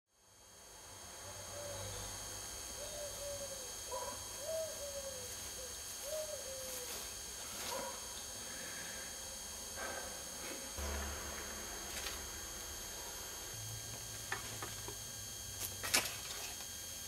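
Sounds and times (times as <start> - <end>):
bird hooting coos: 1.2 - 10.0.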